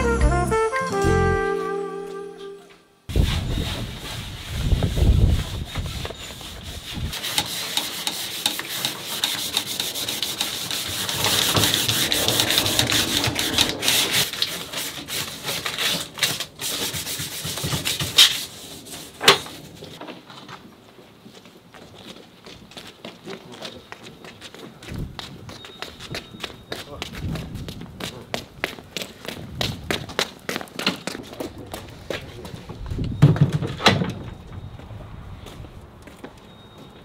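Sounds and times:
scraping on a hard surface: 0:03.1 - 0:17.5.

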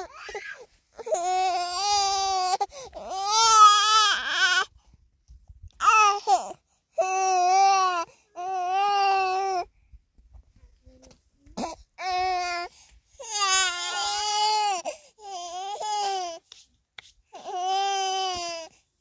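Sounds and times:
infant crying: 0:00.0 - 0:04.7, 0:05.8 - 0:09.7, 0:11.6 - 0:16.4, 0:17.4 - 0:18.7.

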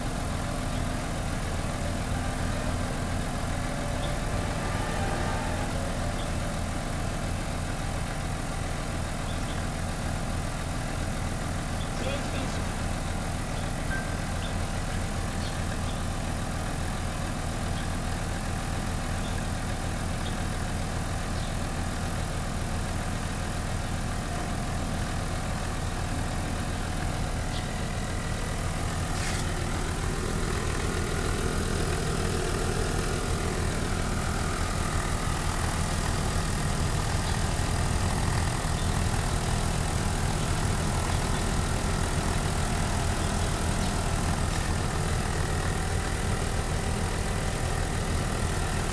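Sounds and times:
air compressor running: 0:26.1 - 0:48.9.

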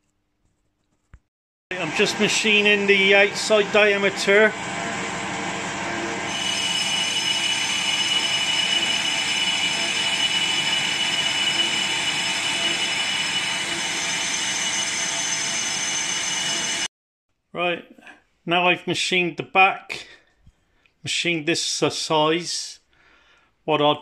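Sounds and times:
metal lathe running: 0:01.7 - 0:16.9
thin high whining tones: 0:01.8 - 0:16.9.

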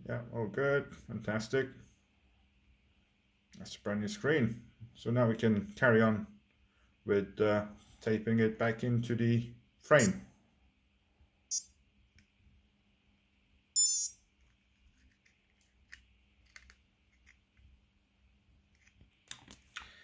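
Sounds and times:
high-pitched chirp: 0:11.5 - 0:11.7, 0:13.8 - 0:14.2.

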